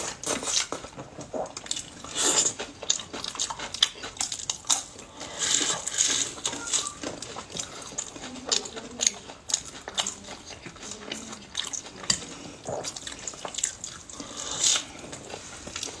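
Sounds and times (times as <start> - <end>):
slurping noodles: 0.0 - 2.8, 5.1 - 6.5, 11.8 - 16.0
wet chewing and lip-smacking: 0.0 - 16.0.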